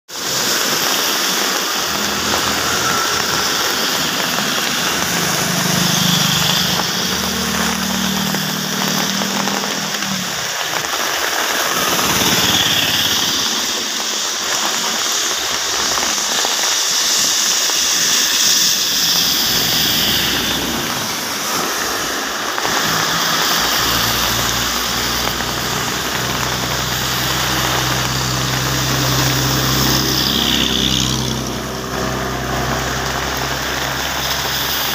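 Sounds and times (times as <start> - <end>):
bus engine humming: 0.1 - 13.3, 19.0 - 34.9
rain on road: 0.1 - 34.9
tyres swishing on wet road: 0.1 - 34.9.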